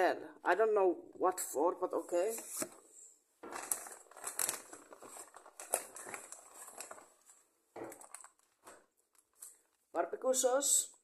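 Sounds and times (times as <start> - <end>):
food packaging rustling: 3.4 - 9.8.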